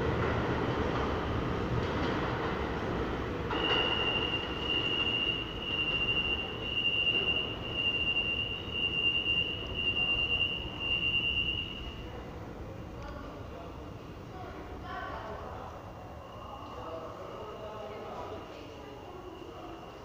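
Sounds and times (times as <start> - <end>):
train rumble: 0.0 - 20.0
train wheels squealing: 3.5 - 12.2, 16.1 - 20.0.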